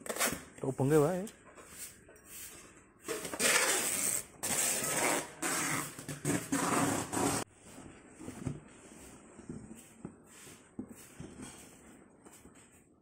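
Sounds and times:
adhesive tape pulled off roll: 0:03.2 - 0:07.4.

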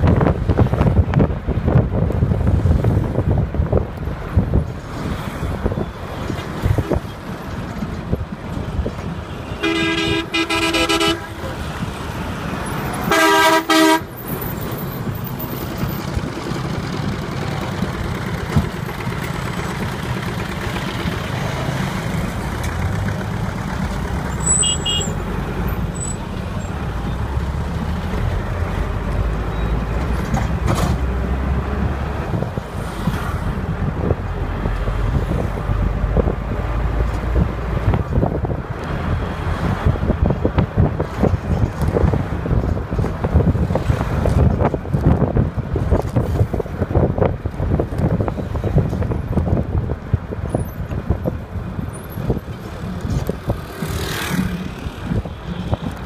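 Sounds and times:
vehicle horn blasts: 0:09.3 - 0:11.5, 0:13.0 - 0:14.1, 0:24.4 - 0:25.2.

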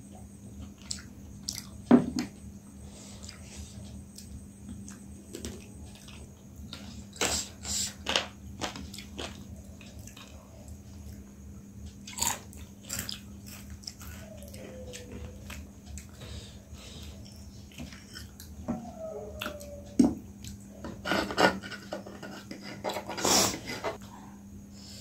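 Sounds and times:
chewing and biting: 0:12.1 - 0:16.2.

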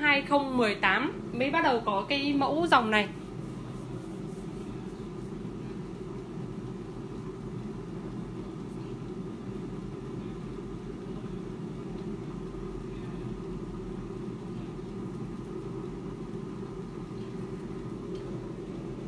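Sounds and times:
air fryer fan hum: 0:00.0 - 0:19.0.

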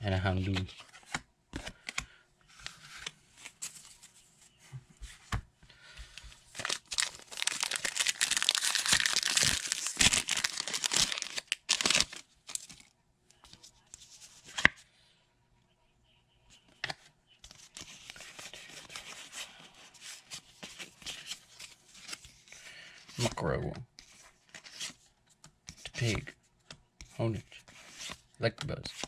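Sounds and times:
foil wrapper tearing and crinkling: 0:06.6 - 0:12.6
cards clicking and rustling: 0:06.6 - 0:12.8.

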